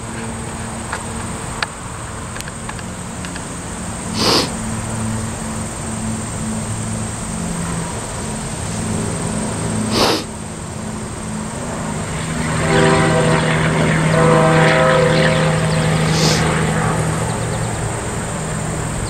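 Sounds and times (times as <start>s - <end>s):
diesel locomotive engine humming: 0.0s - 19.0s
burst of hiss: 4.2s - 4.6s, 9.9s - 10.3s, 16.1s - 16.4s.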